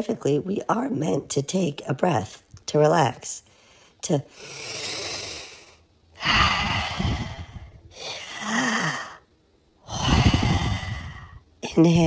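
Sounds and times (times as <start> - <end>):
person breathing deeply: 3.5 - 11.5
low voiced sigh: 9.8 - 11.4.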